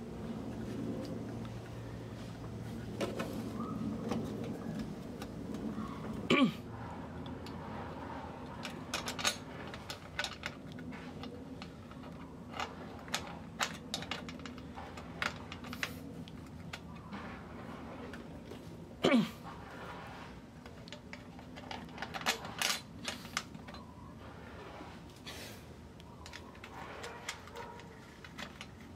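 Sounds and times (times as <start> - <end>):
plastic and metal parts clicking: 26.0 - 28.9.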